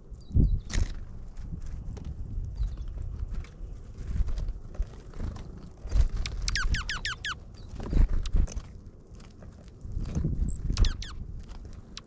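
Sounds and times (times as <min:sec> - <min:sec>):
birds pecking at seed: 0:00.0 - 0:12.0
down-slurred bird chirps: 0:06.2 - 0:08.4, 0:10.5 - 0:11.2.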